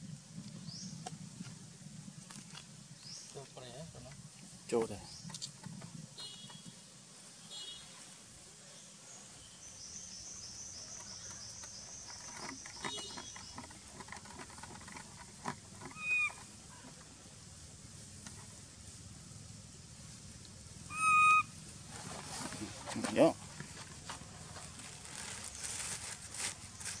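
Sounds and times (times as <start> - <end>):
macaques squealing: 15.9 - 16.4, 20.9 - 21.5.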